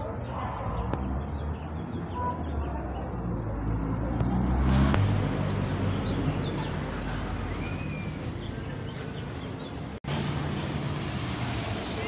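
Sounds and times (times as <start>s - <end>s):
distant traffic rumble: 0.0s - 12.0s
car passing: 3.0s - 12.0s
bird chirps: 5.0s - 10.6s.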